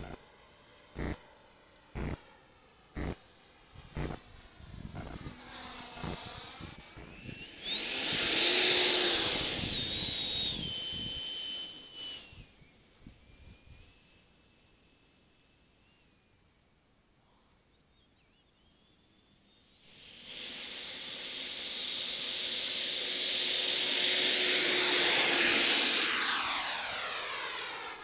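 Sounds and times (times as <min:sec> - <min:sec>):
model jet engine whining: 0:00.0 - 0:28.0
sharp ticks: 0:01.0 - 0:01.2, 0:02.0 - 0:02.2, 0:03.0 - 0:03.2, 0:03.9 - 0:04.2, 0:04.9 - 0:05.4, 0:06.0 - 0:07.1.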